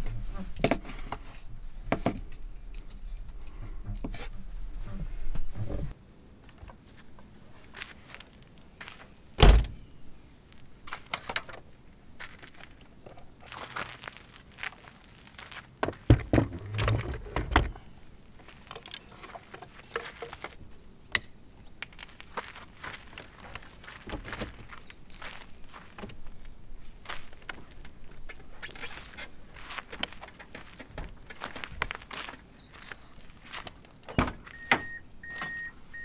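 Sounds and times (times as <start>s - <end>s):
wooden door heavy thunk: 9.4s - 9.8s.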